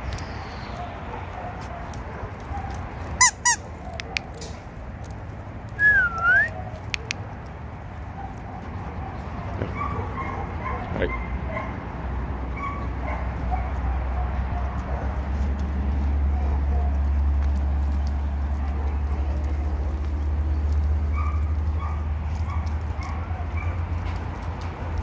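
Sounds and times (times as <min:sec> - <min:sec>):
dogs yelping: 0:00.4 - 0:04.8, 0:06.2 - 0:25.0
dog whining: 0:03.2 - 0:04.2.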